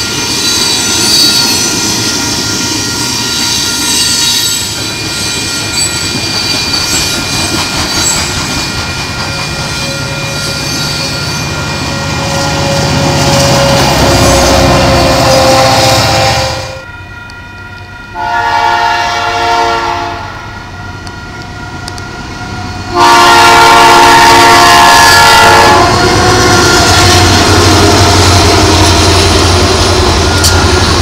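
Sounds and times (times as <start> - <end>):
train wheels clattering on rails: 0.0 - 12.0, 25.9 - 31.0
high wheel squeal: 0.0 - 16.5.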